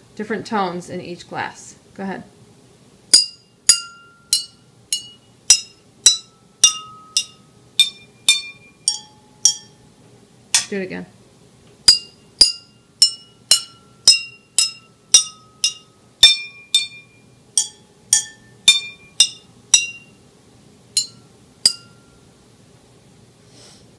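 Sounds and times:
water glasses clinking: 0:21.0 - 0:22.0.

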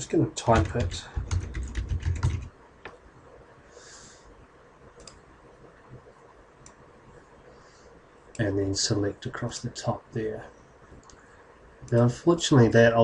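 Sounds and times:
typing on computer keyboard: 0:00.5 - 0:02.5.

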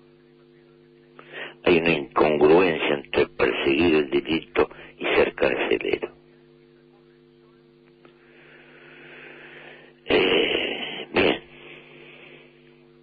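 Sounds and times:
low electrical hum: 0:00.0 - 0:13.0
breathing: 0:01.2 - 0:01.6, 0:04.7 - 0:05.0, 0:08.1 - 0:10.0, 0:10.7 - 0:12.8
man clearing his throat: 0:10.1 - 0:11.8.

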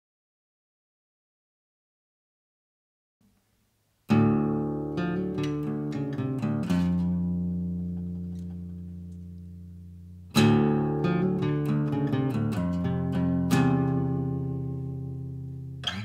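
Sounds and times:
acoustic guitar folk tune: 0:04.0 - 0:16.0.

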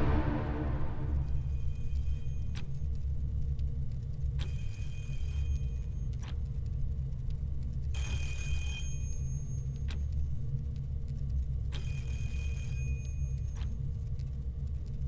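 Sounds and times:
low machine hum: 0:00.0 - 0:01.8.

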